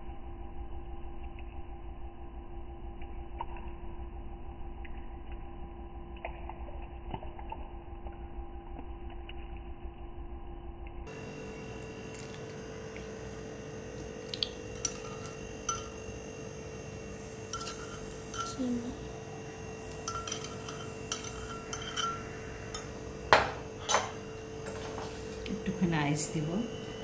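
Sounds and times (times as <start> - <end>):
low hum: 0.0 - 27.0
metal spoon clinking: 14.4 - 16.2, 17.0 - 24.3
spoon knock: 17.5 - 18.6, 19.9 - 24.2.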